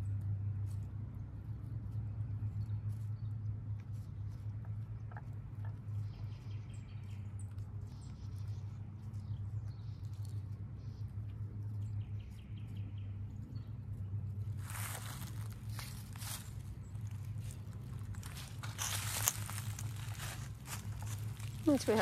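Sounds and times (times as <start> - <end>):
low hum: 0.0 - 22.0
faint rustling: 14.6 - 22.0.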